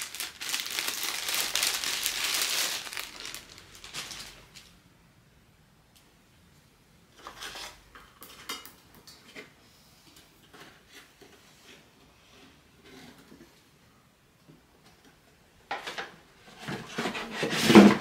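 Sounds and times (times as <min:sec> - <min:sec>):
packaging rustling and scraping: 0:00.0 - 0:04.7, 0:16.5 - 0:18.0.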